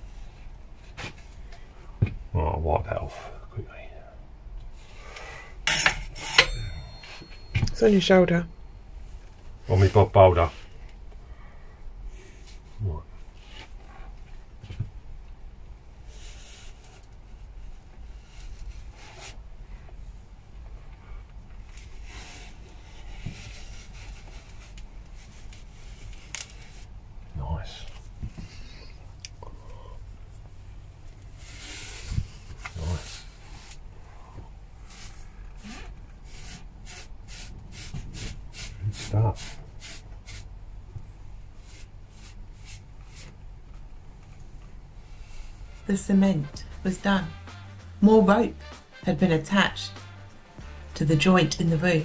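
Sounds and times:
low steady hum: 0:00.0 - 0:36.6, 0:38.8 - 0:52.0
cloth rubbing on metal pipe: 0:16.1 - 0:20.4, 0:21.0 - 0:27.0, 0:30.2 - 0:40.5, 0:41.3 - 0:43.7, 0:44.3 - 0:52.0
cloth wiping strokes: 0:41.6 - 0:43.4.

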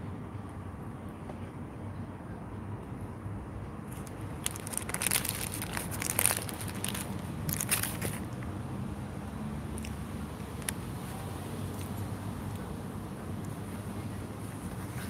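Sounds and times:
paper wrapper crinkling: 0:03.9 - 0:08.3.

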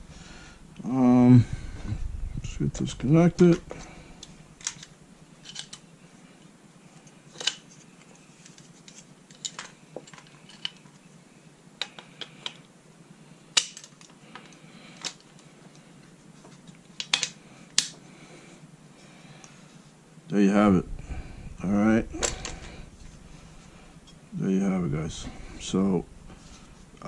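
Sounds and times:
plastic parts clicking and knocking: 0:04.2 - 0:05.8, 0:13.6 - 0:15.4, 0:17.0 - 0:18.0.

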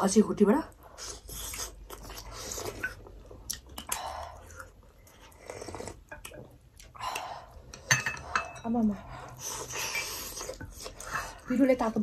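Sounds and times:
chewing: 0:00.8 - 0:07.9, 0:09.2 - 0:11.5.

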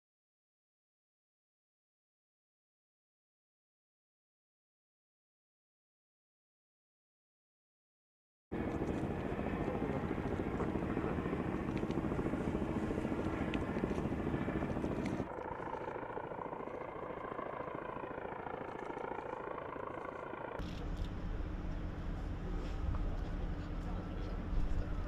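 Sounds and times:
engine drone: 0:08.6 - 0:25.0.

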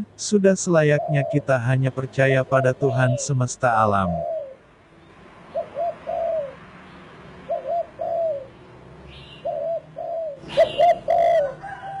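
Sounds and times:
dove cooing: 0:00.8 - 0:04.6, 0:05.5 - 0:06.6, 0:07.5 - 0:12.0.

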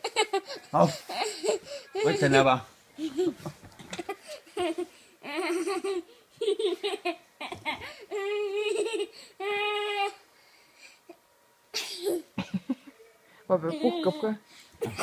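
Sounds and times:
child laughing: 0:03.0 - 0:09.2.

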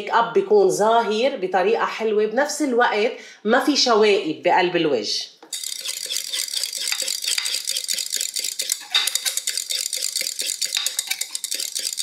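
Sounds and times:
wire whisk clinking against glass: 0:05.5 - 0:12.0.

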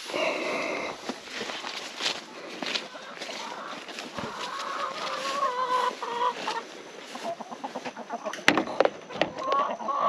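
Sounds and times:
chickens clucking: 0:00.0 - 0:10.0.

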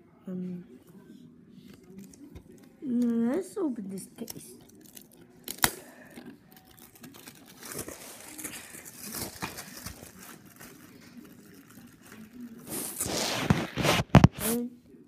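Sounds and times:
microphone scraping on fabric: 0:12.7 - 0:14.6.

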